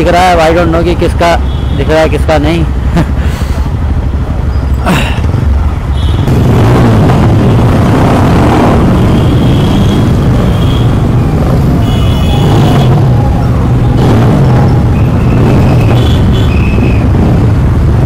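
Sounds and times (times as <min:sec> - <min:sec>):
motorcycle engines rumbling: 0:00.0 - 0:18.0
road traffic noise: 0:00.0 - 0:18.0.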